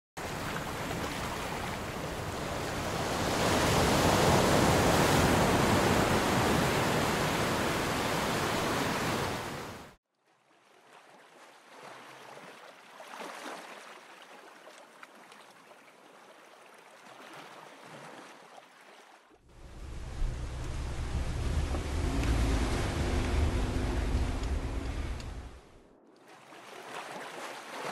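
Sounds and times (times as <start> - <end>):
ocean surf washing on beach: 0.2 - 10.0, 19.5 - 27.9
deep rushing noise: 19.4 - 26.0.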